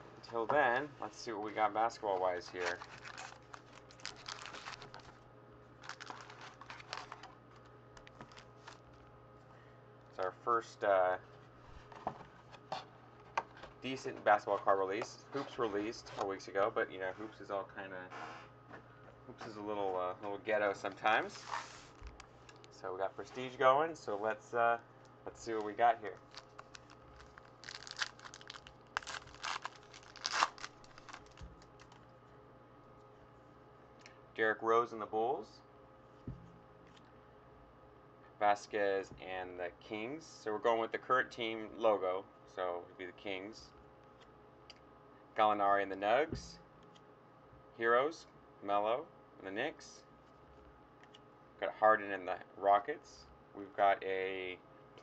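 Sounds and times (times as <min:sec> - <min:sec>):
faint low hum: 0:00.0 - 0:55.0
foil card packs crinkling: 0:01.2 - 0:05.2, 0:05.8 - 0:09.0, 0:25.4 - 0:32.1.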